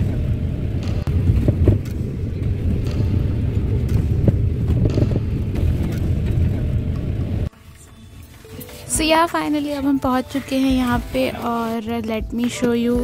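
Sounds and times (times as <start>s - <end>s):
bus rumbling on wet road: 0.0s - 7.5s.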